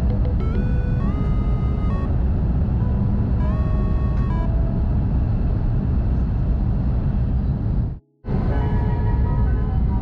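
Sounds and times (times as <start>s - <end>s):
train rumbling inside cabin: 0.0s - 10.0s.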